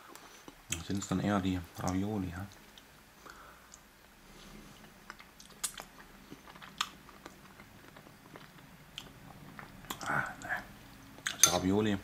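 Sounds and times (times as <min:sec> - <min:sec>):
person chewing: 0:03.7 - 0:11.4
mouth clicks and smacks: 0:05.1 - 0:11.4.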